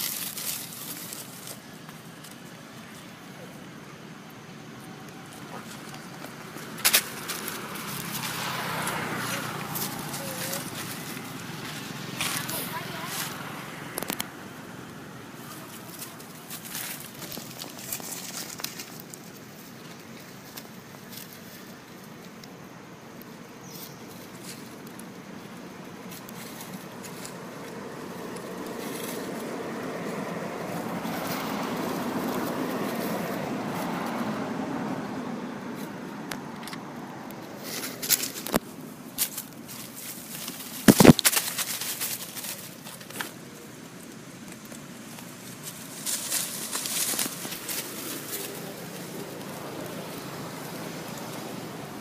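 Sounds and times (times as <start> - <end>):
sharp crackles: 0.0 - 2.6, 5.1 - 14.4, 15.4 - 22.6, 37.5 - 51.9
passing vehicle engine: 0.0 - 19.4, 20.2 - 52.0.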